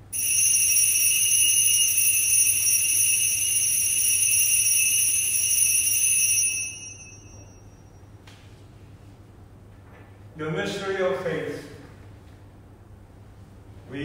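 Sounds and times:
altar bells ringing: 0.0s - 8.2s.

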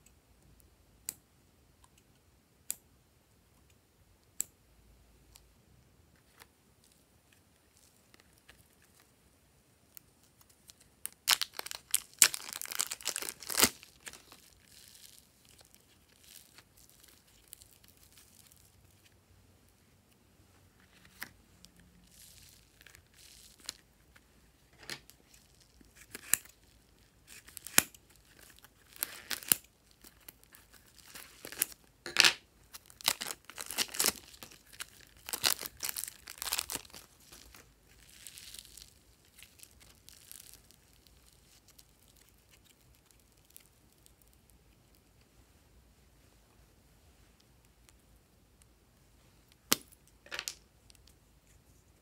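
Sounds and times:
plastic packets crinkling: 10.5s - 19.0s, 22.0s - 23.8s, 25.0s - 44.3s.

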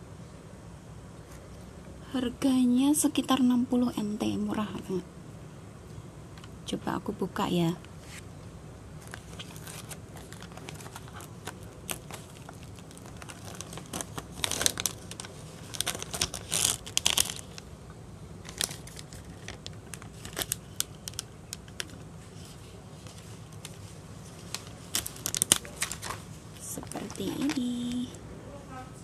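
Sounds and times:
low steady hum: 0.0s - 29.0s
plastic packaging crinkling: 9.0s - 17.7s, 18.4s - 28.1s.

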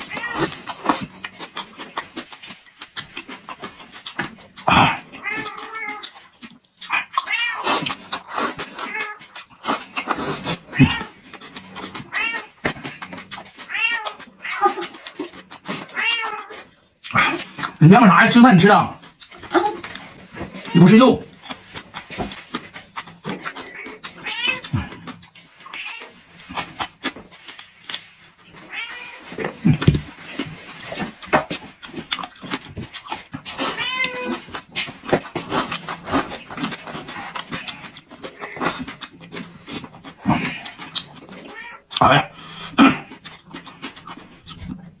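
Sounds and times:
cat meowing: 0.1s - 0.5s, 5.2s - 6.0s, 7.2s - 7.6s, 10.7s - 11.2s, 12.1s - 12.6s, 13.7s - 14.9s, 15.9s - 16.6s, 23.7s - 24.9s, 28.7s - 29.2s, 33.7s - 34.4s, 41.5s - 41.8s
chewing and lip-smacking clicks: 0.4s - 17.8s, 19.0s - 20.7s, 21.3s - 28.3s, 29.7s - 45.0s.

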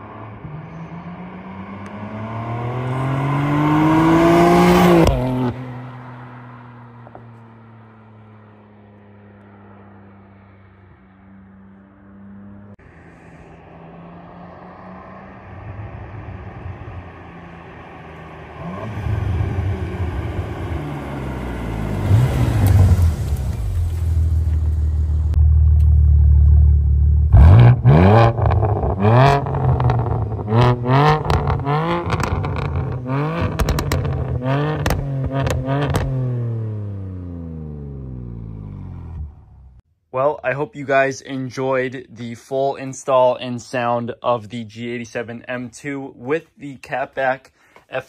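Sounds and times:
engine revving in blips: 0.0s - 5.9s, 25.3s - 39.8s
car engine accelerating past: 0.0s - 39.8s.

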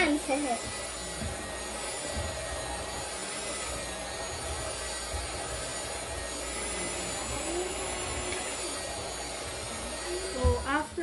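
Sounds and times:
electric hand mixer running: 0.0s - 11.0s.

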